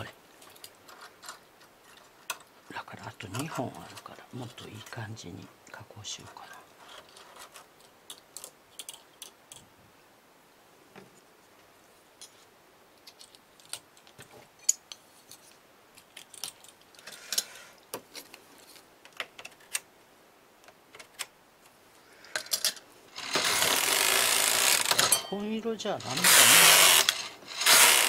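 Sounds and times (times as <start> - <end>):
knitting machine carriage rattling: 22.6 - 28.0
small metallic clinks: 24.9 - 25.5.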